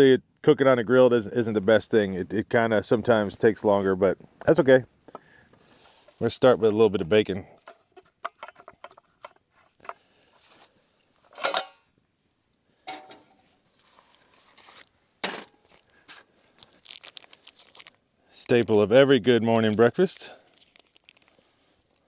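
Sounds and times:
plastic packaging crinkling: 13.8 - 18.9, 19.5 - 22.0.

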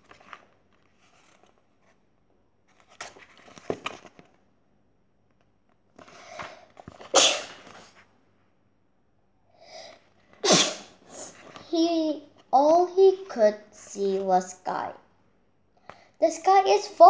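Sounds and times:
book rustling and clicking: 0.0 - 2.0, 2.6 - 4.5
child sneezing: 7.1 - 7.8, 10.4 - 11.4.

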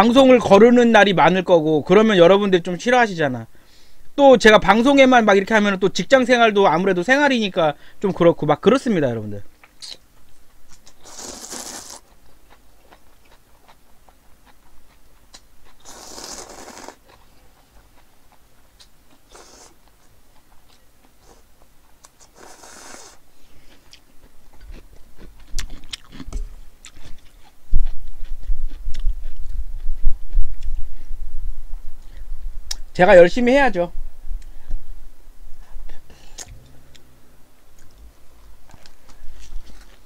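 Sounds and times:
chewing: 9.6 - 31.1
noodles slurped: 10.8 - 12.1, 15.8 - 17.2, 19.2 - 19.9, 22.0 - 23.2.

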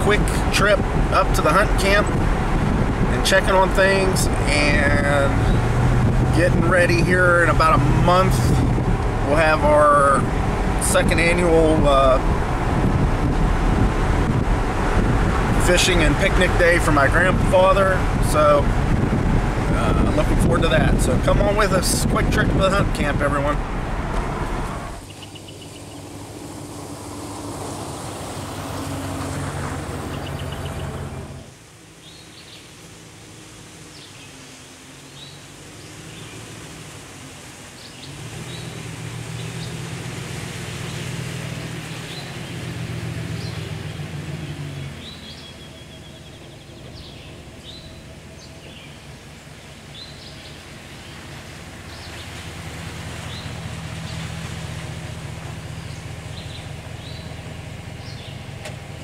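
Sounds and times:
road and engine noise inside truck: 0.0 - 59.0
birds chirping: 3.2 - 11.8, 20.9 - 32.9, 33.8 - 36.7, 37.4 - 40.1, 40.7 - 59.0
truck engine idling: 41.0 - 59.0.

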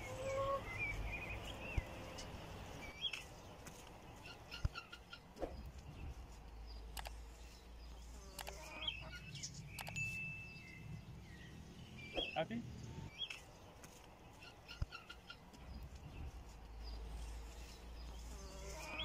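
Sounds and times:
faint bird chirps: 4.2 - 13.5.

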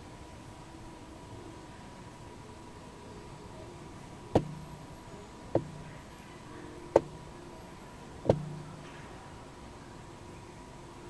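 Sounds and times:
faint steady hiss: 0.0 - 11.0
sharp knocks: 4.4 - 4.8, 5.5 - 6.0, 7.0 - 7.2, 8.3 - 8.9.

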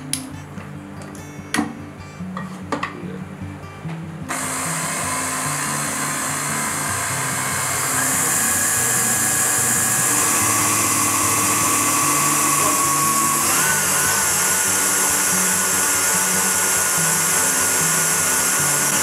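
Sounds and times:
stand mixer whirring: 4.3 - 19.0.

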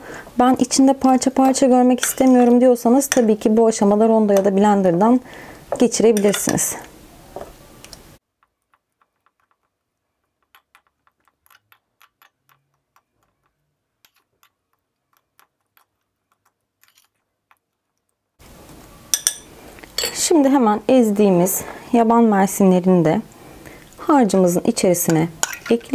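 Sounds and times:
fork tapping glass bowl: 3.1 - 3.3, 6.2 - 6.6, 19.1 - 20.2.

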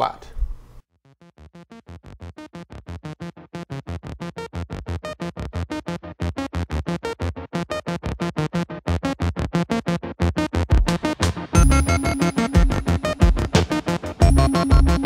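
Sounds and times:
fast synthesizer notes: 11.6 - 15.0.

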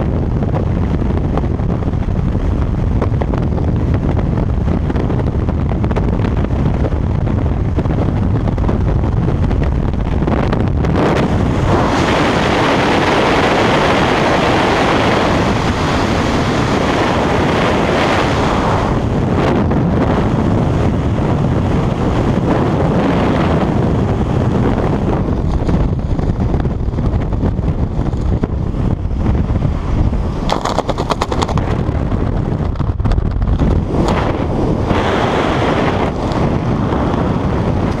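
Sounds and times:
wind buffeting microphone: 0.0 - 38.0
rapid clicks: 30.5 - 31.8.

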